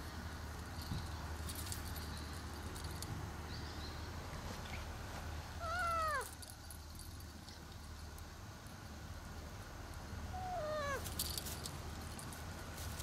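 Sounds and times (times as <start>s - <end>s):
cat meowing: 5.6s - 6.3s, 10.3s - 11.0s.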